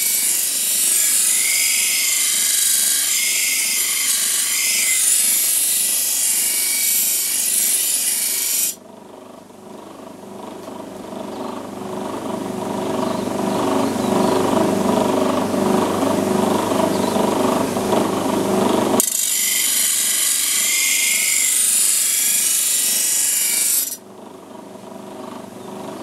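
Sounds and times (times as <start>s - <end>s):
blade grinding on grinder disc: 0.0s - 8.8s, 18.0s - 24.0s.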